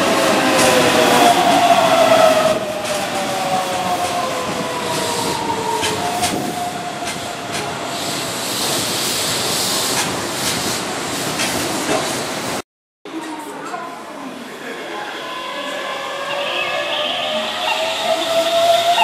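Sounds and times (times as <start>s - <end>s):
train rolling noise: 0.0s - 12.6s, 13.2s - 19.0s
electric train inverter whine: 14.9s - 19.0s.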